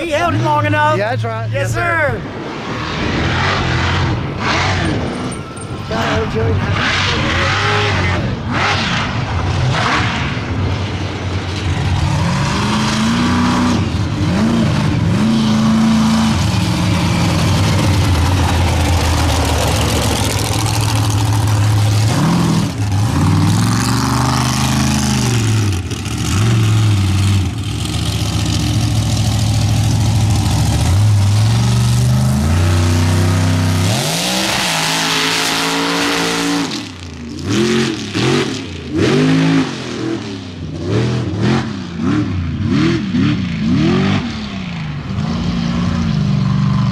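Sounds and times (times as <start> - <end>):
truck engine revving hard: 0.0 - 44.5.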